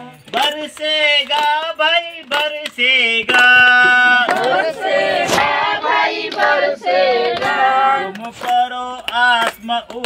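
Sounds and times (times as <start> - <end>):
group singing devotional song: 2.3 - 9.1.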